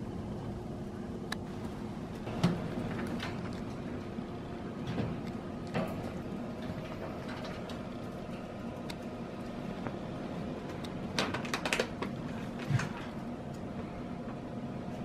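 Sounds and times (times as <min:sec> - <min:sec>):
steady low hum: 0:00.0 - 0:15.0
wire pen rattling and clicking: 0:10.7 - 0:13.1.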